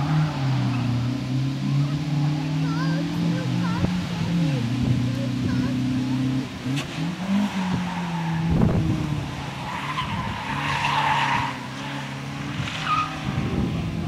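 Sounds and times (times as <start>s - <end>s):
car engine running hard: 0.0s - 14.0s
tyres squealing: 7.2s - 13.4s.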